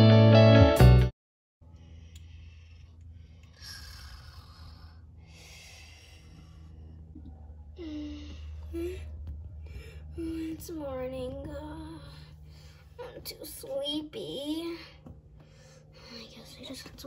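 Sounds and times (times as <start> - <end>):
person breathing heavily: 1.6 - 10.7, 11.9 - 13.0, 14.7 - 16.4
steady low hum: 1.6 - 17.0.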